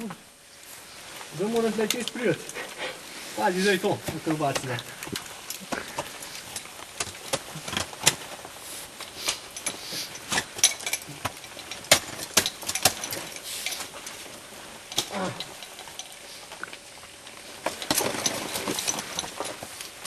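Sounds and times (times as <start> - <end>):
climbing gear scraping on rock: 0.6 - 20.0
metal hardware clinking: 9.3 - 16.2.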